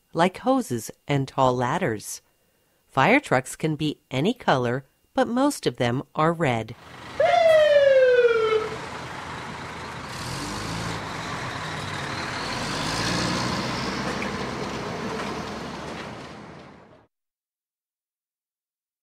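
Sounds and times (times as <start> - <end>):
fire engine siren winding down: 6.8 - 16.0
large truck engine rumble: 6.8 - 17.0.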